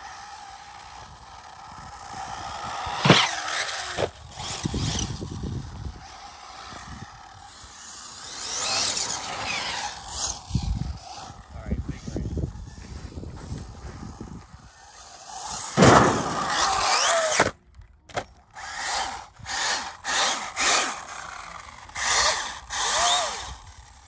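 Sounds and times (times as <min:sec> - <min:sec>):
electric rc car motor whining: 0:00.0 - 0:24.0
tyres tearing over grass: 0:15.6 - 0:17.6.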